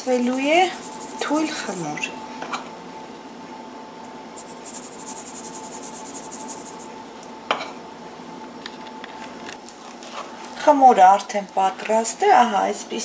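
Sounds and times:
wire sieve rasping: 0.0s - 1.9s, 4.4s - 6.9s.

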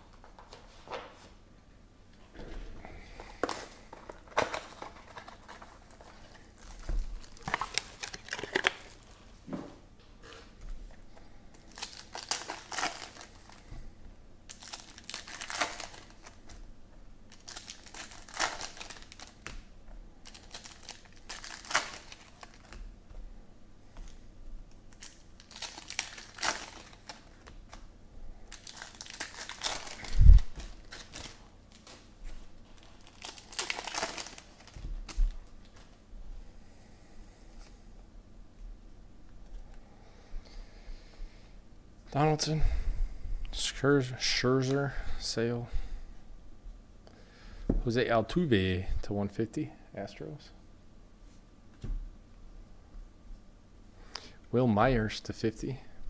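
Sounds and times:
plastic wrappers crinkling: 3.2s - 9.3s, 11.5s - 13.7s, 14.5s - 16.7s, 17.3s - 22.8s, 24.9s - 27.9s, 28.5s - 36.0s.

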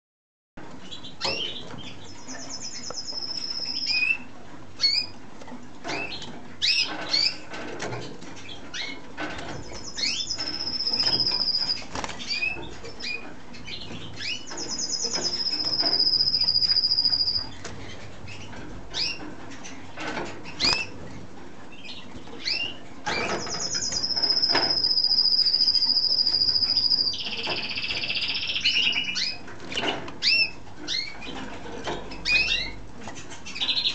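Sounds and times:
canary singing trills: 0.8s - 5.2s, 5.9s - 7.5s, 8.4s - 21.0s, 21.7s - 33.9s
bird chirps: 0.9s - 5.1s, 9.6s - 17.6s, 21.8s - 31.2s.

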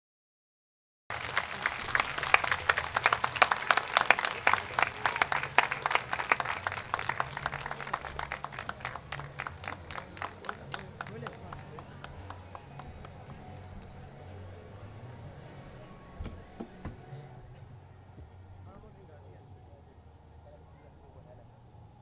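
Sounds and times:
large audience clapping: 1.1s - 14.1s.

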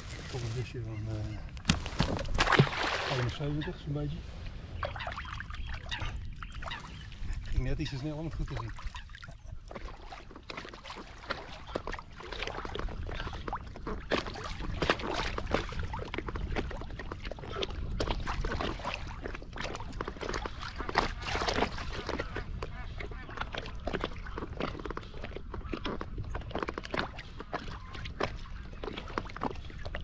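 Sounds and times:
water splashing and sloshing: 0.0s - 30.0s.

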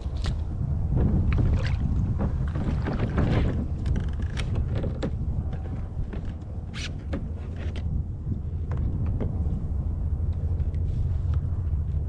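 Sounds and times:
wind buffeting microphone: 0.0s - 12.0s
knocks and clicks on kayak hull: 0.9s - 9.4s
water sloshing: 1.0s - 6.6s.

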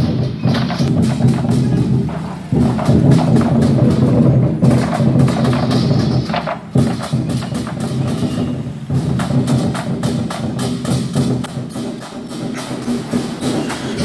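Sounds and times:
large drums playing fast beat: 0.0s - 14.0s.

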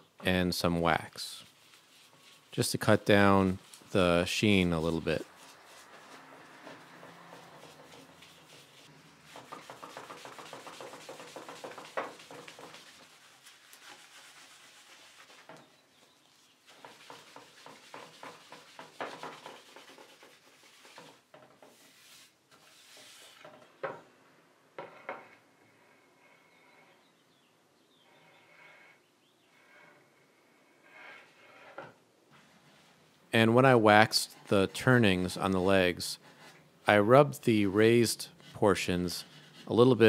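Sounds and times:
steel wool rubbing wooden door: 1.4s - 23.7s, 28.1s - 33.0s, 37.8s - 40.0s.

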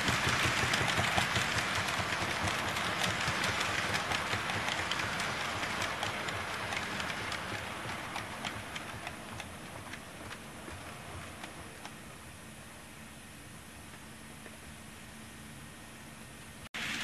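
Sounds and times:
model trains whirring and clicking: 0.0s - 12.5s.

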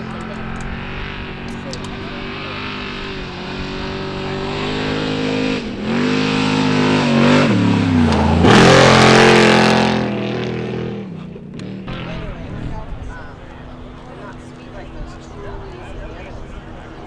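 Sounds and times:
race truck engine revving: 0.0s - 17.0s
loud rushing noise: 0.8s - 10.6s.

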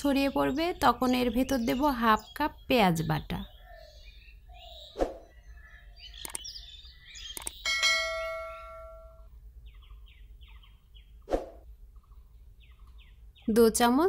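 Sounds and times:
faint bird chirps: 0.0s - 13.9s
button clicks: 6.2s - 6.4s
bell ding: 7.7s - 9.3s.

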